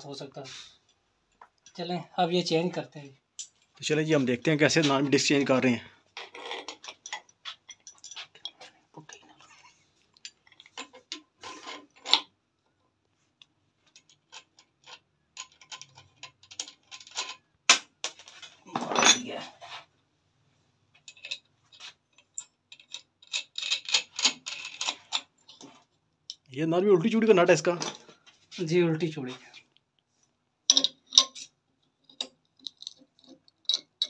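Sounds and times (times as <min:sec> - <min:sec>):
small metallic clicks and scrapes: 0:03.4 - 0:03.8, 0:06.1 - 0:19.9, 0:20.9 - 0:26.5, 0:29.5 - 0:34.0.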